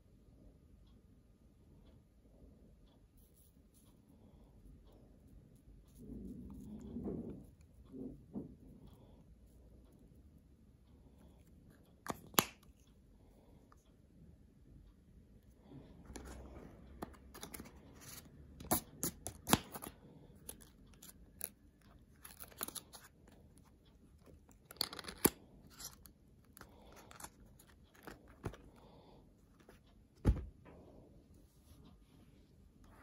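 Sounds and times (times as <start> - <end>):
card box rustling and scraping: 16.1 - 21.2
dull knock of box: 30.2 - 30.5.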